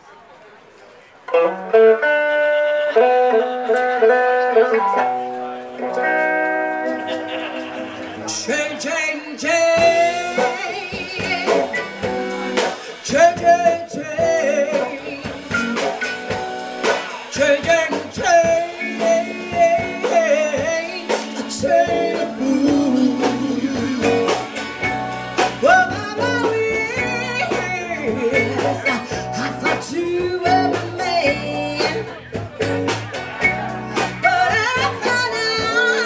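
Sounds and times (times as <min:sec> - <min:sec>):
live band playing blues-soul: 0:01.3 - 0:36.0
woman singing lead: 0:08.3 - 0:15.9, 0:17.2 - 0:24.6, 0:25.6 - 0:32.3, 0:34.0 - 0:36.0.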